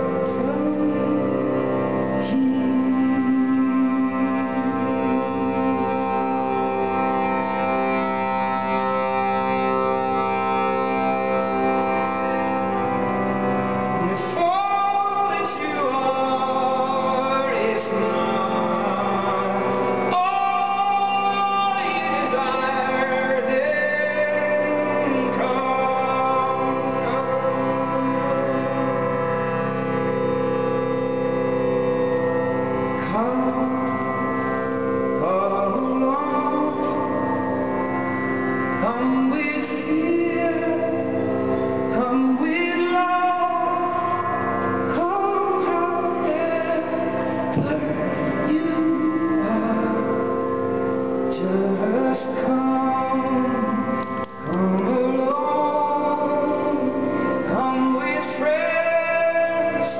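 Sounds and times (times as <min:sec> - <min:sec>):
harmonium chords: 0:00.0 - 0:59.9
man singing: 0:00.0 - 0:59.9.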